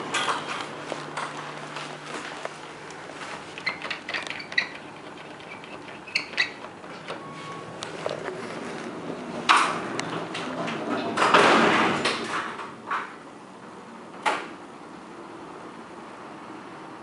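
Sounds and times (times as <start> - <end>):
low elevator hum: 0.0 - 17.0
sliding doors rushing: 3.2 - 13.1.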